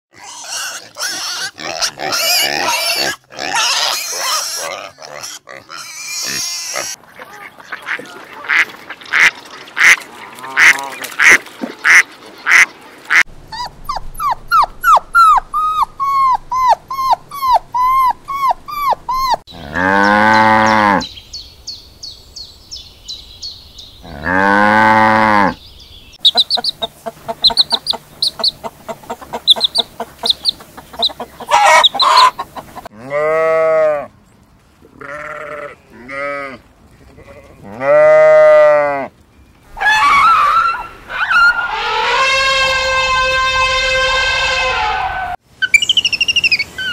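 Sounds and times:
farm animal calls: 0:00.2 - 0:21.2, 0:26.2 - 0:34.1
bird chirping: 0:13.6 - 0:24.2, 0:25.5 - 0:32.8, 0:45.6 - 0:46.9
cow mooing: 0:19.5 - 0:21.0, 0:24.0 - 0:25.6.

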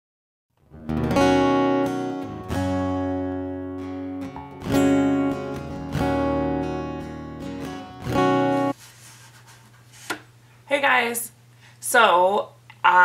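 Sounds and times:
strummed acoustic guitar: 0:00.7 - 0:08.8.

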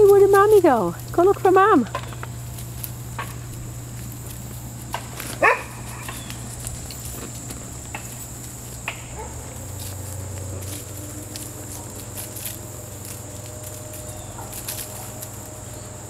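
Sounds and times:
faint scattered ticks: 0:00.0 - 0:16.0
steady low hum: 0:00.0 - 0:16.0
puppy yelping: 0:05.4 - 0:06.6.

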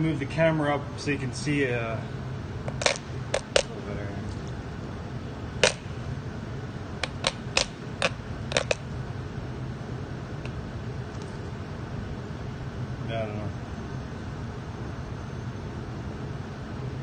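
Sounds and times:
oven hum: 0:00.0 - 0:17.0
sharp clicks: 0:07.0 - 0:08.8.

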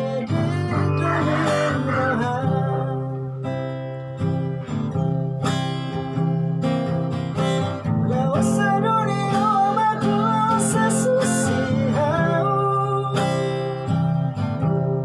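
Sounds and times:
man singing: 0:00.0 - 0:03.5, 0:08.0 - 0:13.7
acoustic guitar strumming chords: 0:00.0 - 0:15.0.

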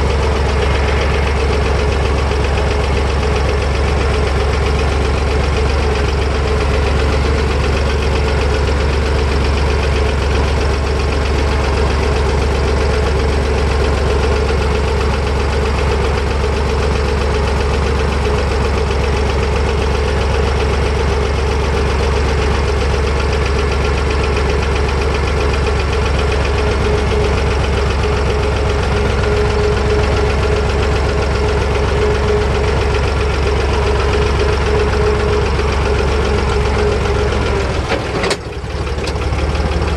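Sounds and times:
tractor diesel engine running: 0:00.0 - 0:39.9.

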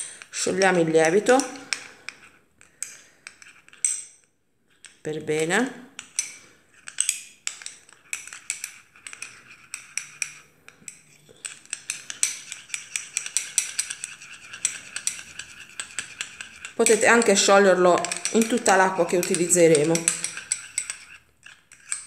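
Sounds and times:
teaspoon clinking in ceramic cup: 0:06.9 - 0:21.1.

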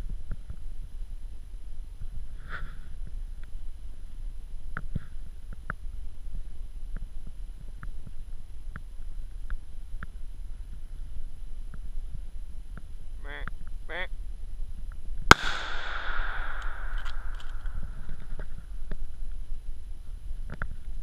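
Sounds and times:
low rumble on microphone: 0:00.0 - 0:21.0.

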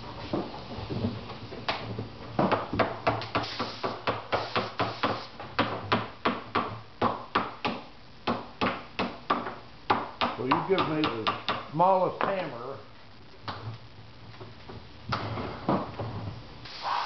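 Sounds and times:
hammer tapping on fiberglass: 0:02.4 - 0:12.4.

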